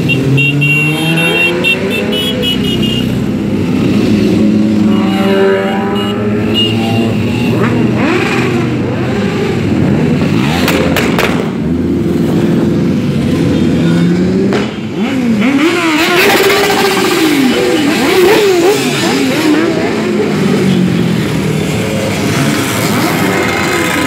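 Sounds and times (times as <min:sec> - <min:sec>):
motorcycles riding past: 0:00.0 - 0:24.0
motorcycle engine revs: 0:00.1 - 0:02.4, 0:03.1 - 0:24.0.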